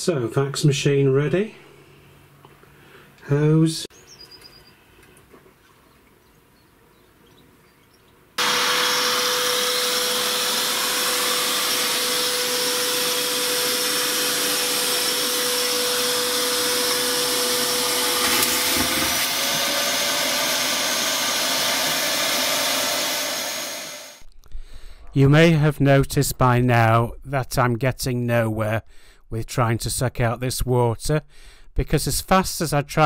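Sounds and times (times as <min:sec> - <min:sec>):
vacuum machine sucking water: 0:08.4 - 0:24.2.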